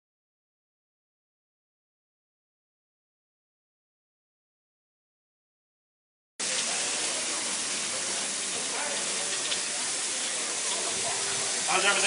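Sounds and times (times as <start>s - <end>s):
faint voices: 6.4s - 12.0s
food sizzling on a grill: 6.4s - 12.0s.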